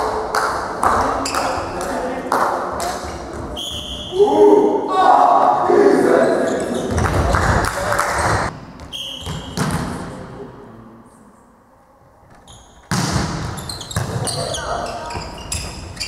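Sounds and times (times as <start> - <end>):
players shouting in hall: 4.1 - 6.5
referee's whistle blast: 8.9 - 9.6.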